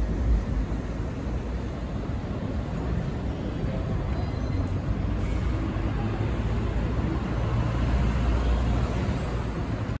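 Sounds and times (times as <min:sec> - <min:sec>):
road traffic rumble: 0:00.0 - 0:10.0.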